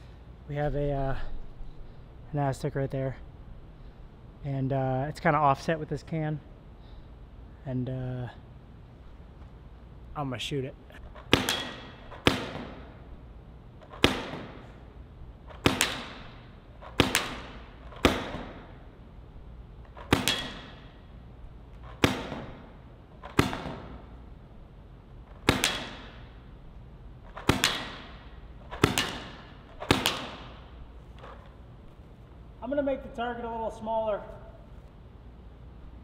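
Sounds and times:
paintball marker pops echoing: 11.2s - 12.9s, 13.9s - 14.6s, 15.5s - 18.7s, 19.9s - 21.0s, 21.9s - 24.0s, 25.4s - 26.3s, 27.3s - 30.7s.

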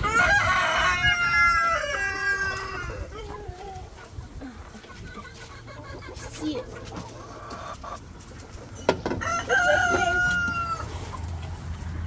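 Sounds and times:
rooster crowing: 0.0s - 3.0s, 9.2s - 11.0s
chickens clucking: 0.0s - 12.0s.

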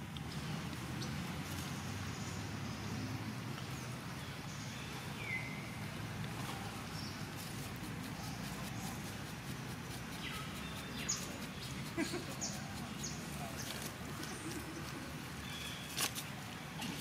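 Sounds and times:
forest background: 0.0s - 17.0s.

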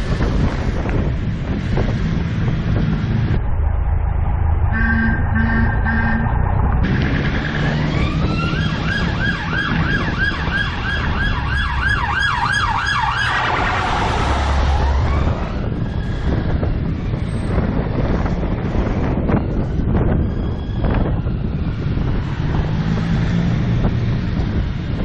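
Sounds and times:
scooter road and wind noise: 0.0s - 25.0s
emergency vehicle siren yelping: 3.6s - 6.8s, 7.5s - 18.2s, 18.8s - 22.3s.

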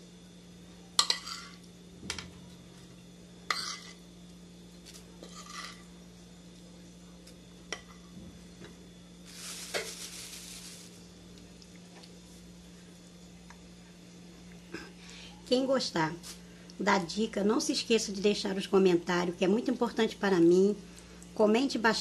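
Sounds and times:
low steady hum: 0.0s - 22.0s
metal spoon scraping a plate: 5.2s - 5.8s
plastic bag crinkling: 9.2s - 11.1s.

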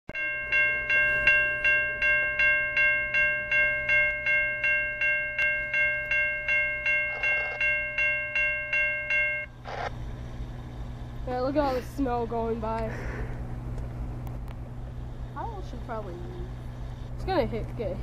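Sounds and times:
crossing warning bell ringing: 0.1s - 9.9s
low steady hum: 0.2s - 18.0s.

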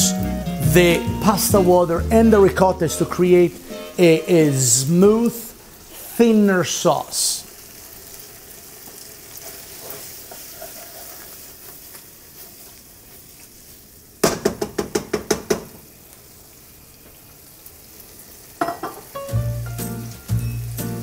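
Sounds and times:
pasta sizzling in a skillet: 1.3s - 21.0s
wooden spoon stirring: 9.4s - 13.2s.

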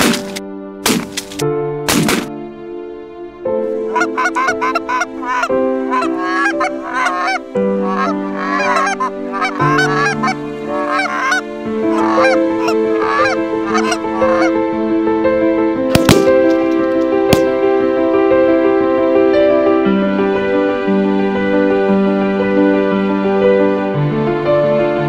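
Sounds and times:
music of held chords: 0.0s - 25.0s
geese honking: 3.8s - 14.7s.

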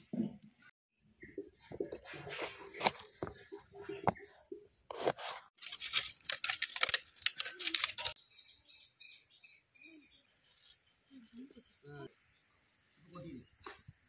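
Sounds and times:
faint bird chirps: 8.1s - 14.0s.

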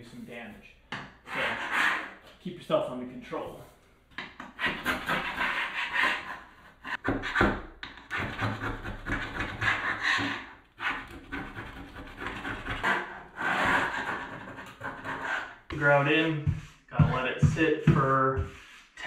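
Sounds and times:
grout scraper rasping: 1.2s - 2.2s, 4.2s - 15.7s.

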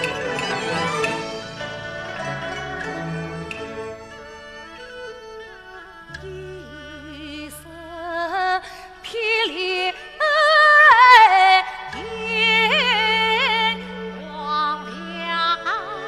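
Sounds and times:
traditional chinese orchestra: 0.0s - 16.0s
woman singing opera: 6.2s - 16.0s.

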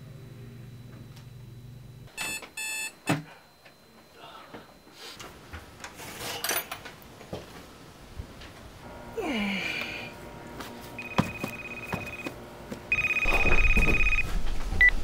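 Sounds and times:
alarm clock beeping: 2.1s - 3.0s, 11.0s - 12.3s, 12.9s - 14.9s.

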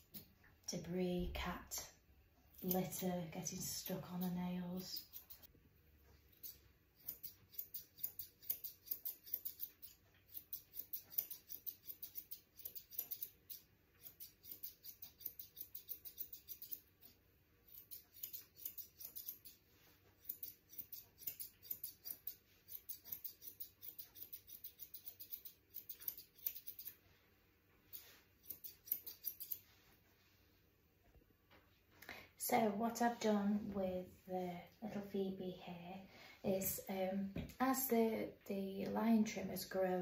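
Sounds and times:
scissors snipping fur: 2.6s - 3.0s, 3.7s - 5.5s, 6.3s - 19.6s, 20.2s - 27.0s, 27.9s - 29.7s.

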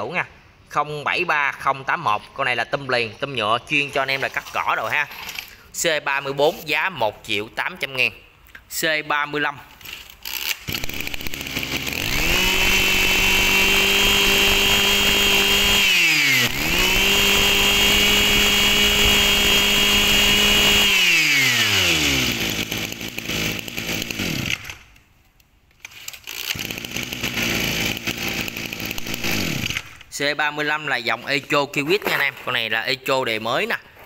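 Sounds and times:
brush cutter engine revving: 10.2s - 24.8s, 25.9s - 30.2s.

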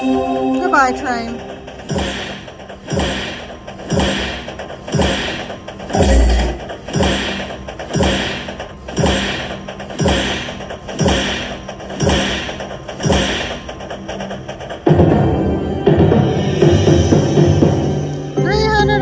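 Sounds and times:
rhythmic chugging beat: 0.0s - 19.0s.

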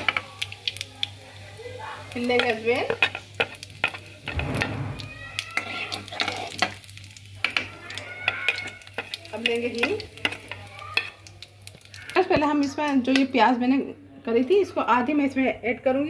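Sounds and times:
seeds sizzling in hot oil: 0.0s - 13.6s
spoon clinking and scraping pan: 2.3s - 4.7s, 5.5s - 11.2s.

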